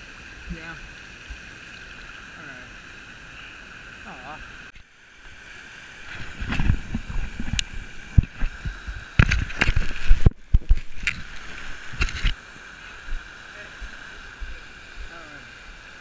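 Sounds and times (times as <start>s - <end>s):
waterfall and stream rushing: 0.0s - 16.0s
thumps and knocks on camera: 6.3s - 11.2s.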